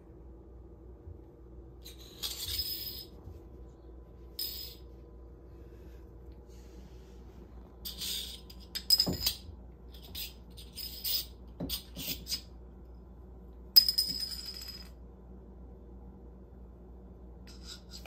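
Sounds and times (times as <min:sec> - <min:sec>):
bottle cap clattering on tiles: 0:07.9 - 0:09.4.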